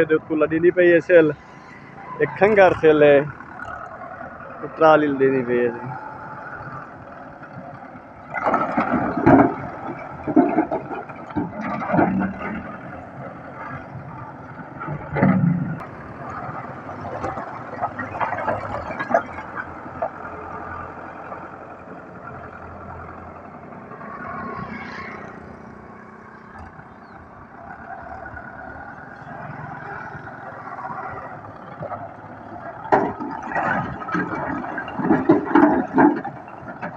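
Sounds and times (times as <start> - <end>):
tractor engine running under load: 0.0 - 36.9
rubble clattering: 8.2 - 13.9, 29.5 - 36.9.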